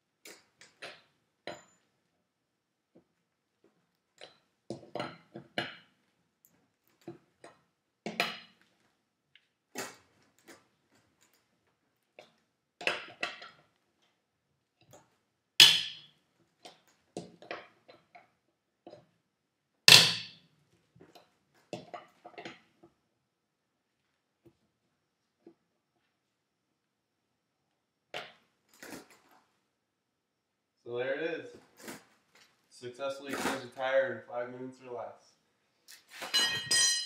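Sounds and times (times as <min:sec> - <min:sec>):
loud metal clanks: 0:19.9 - 0:20.4
tire iron clinking on lug nuts: 0:36.2 - 0:37.0.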